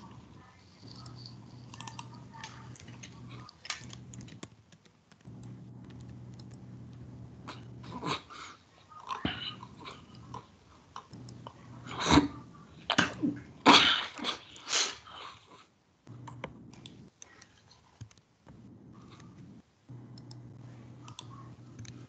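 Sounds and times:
keyboard keys clicking: 0.9 - 7.0, 16.2 - 22.0.

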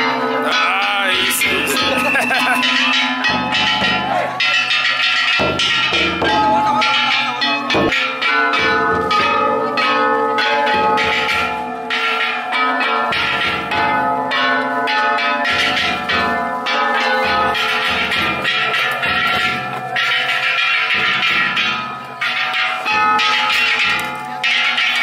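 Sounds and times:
bronze gongs clanging: 0.0 - 25.0
big drum beating: 1.1 - 8.0, 8.6 - 9.5.

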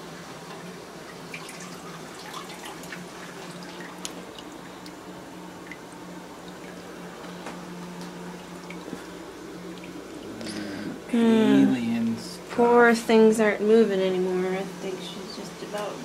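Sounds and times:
steady low hum: 0.0 - 16.0
water dripping: 1.1 - 10.5.

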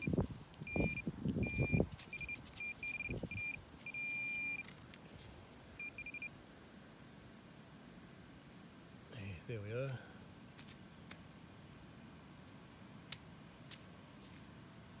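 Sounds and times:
metal detector beeping: 0.0 - 4.7, 5.8 - 6.3.

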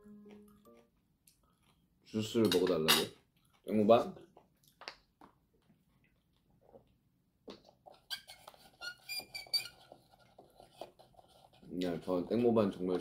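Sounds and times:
plastic straw squeaking in cup lid: 7.9 - 11.6.

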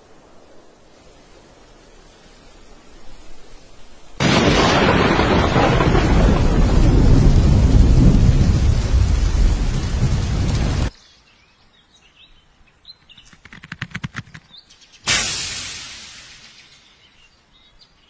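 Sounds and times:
quick run of clicks: 13.0 - 14.8
faint bird chirps: 16.2 - 18.0.

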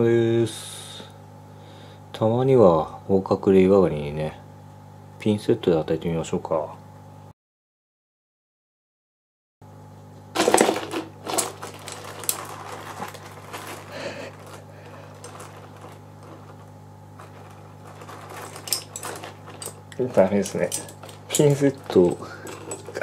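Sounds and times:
low steady hum: 9.7 - 23.0
crab scraping and rattling: 10.4 - 23.0.

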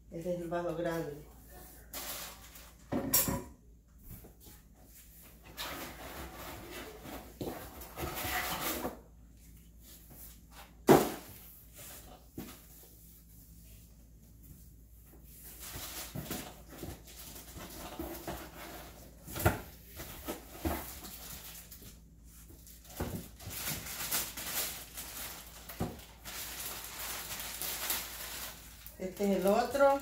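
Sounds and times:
plastic bags crinkling: 20.8 - 30.0.

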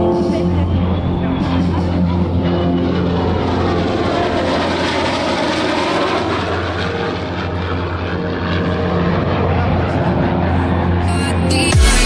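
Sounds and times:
jet roar: 0.0 - 12.0
propeller plane engine: 0.0 - 12.0.

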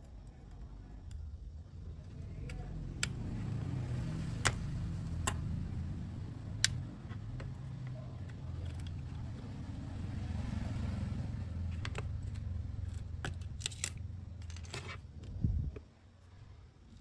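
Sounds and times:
low rumble: 1.1 - 7.8.

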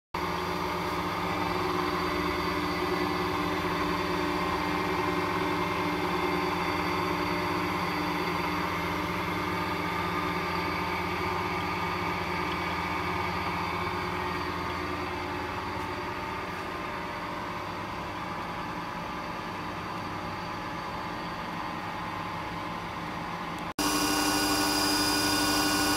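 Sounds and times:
steady machine tones: 23.8 - 25.9
woodworking machine motors humming: 23.8 - 25.9.

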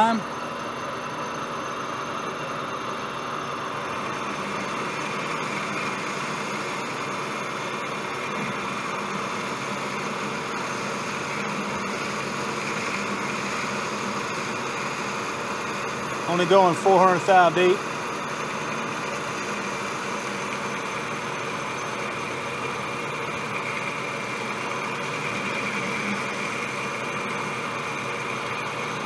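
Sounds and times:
lathe motor hum: 0.0 - 29.0
hiss of lathe cutting metal: 4.0 - 29.0.

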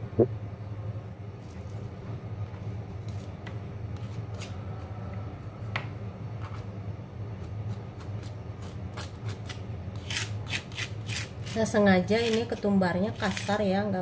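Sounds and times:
steady low hum: 0.0 - 14.0
stone pestle grinding in mortar: 10.0 - 12.5.

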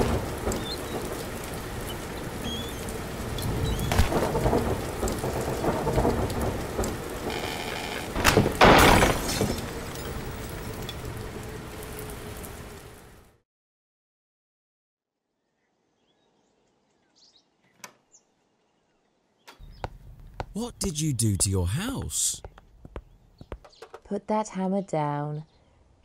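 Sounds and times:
steady rain: 0.0 - 13.4, 20.1 - 22.4
thunder rolling: 3.5 - 7.3
window smashing: 8.4 - 9.6.

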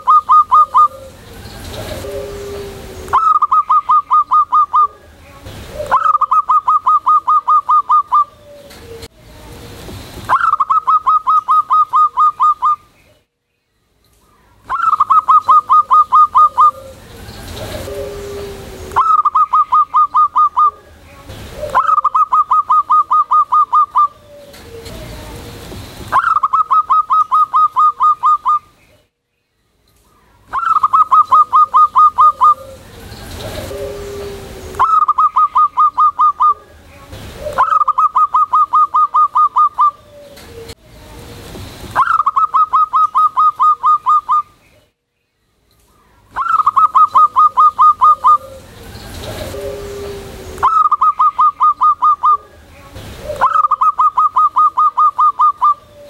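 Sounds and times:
lower dove coo: 0.0 - 12.8, 14.7 - 29.0, 30.5 - 41.3, 42.0 - 44.5, 46.4 - 56.0
dove cooing: 0.0 - 12.9, 14.6 - 28.7, 30.5 - 40.8, 42.0 - 44.6, 46.3 - 56.0.

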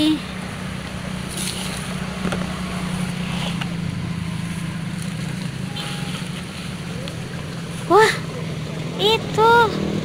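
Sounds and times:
low engine drone: 0.0 - 10.0.

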